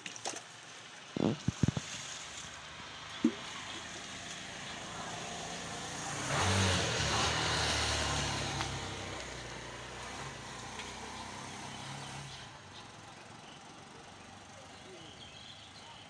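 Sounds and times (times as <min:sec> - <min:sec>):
vehicle passing: 0:02.7 - 0:13.0.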